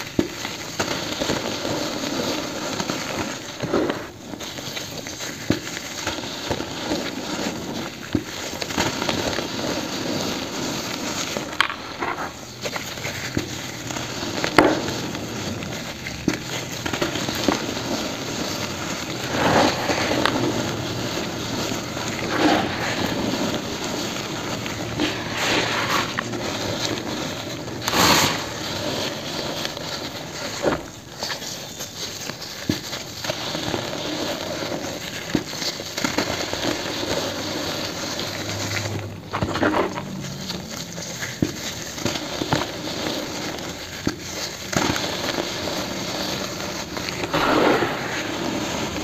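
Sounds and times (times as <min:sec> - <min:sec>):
cement chunks crumbling by hand: 0:38.4 - 0:42.7.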